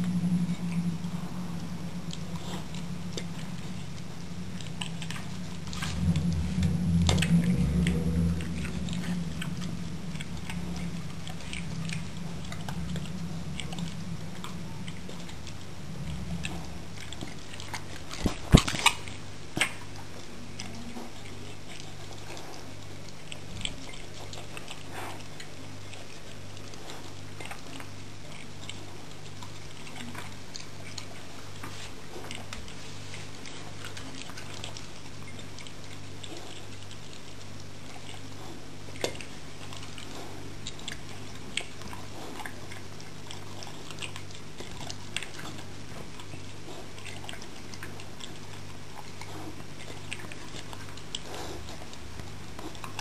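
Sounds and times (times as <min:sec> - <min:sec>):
low rumble: 0:00.0 - 0:23.8
dog chewing and licking: 0:00.0 - 0:53.0.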